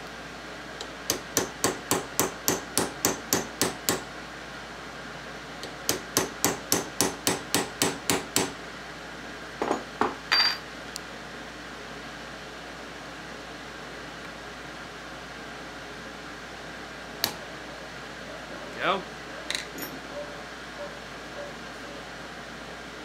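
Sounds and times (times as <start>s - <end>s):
hammer tapping steel punch: 0.8s - 4.1s, 5.6s - 8.6s
metal scrape and ring: 10.3s - 10.6s, 19.7s - 20.0s.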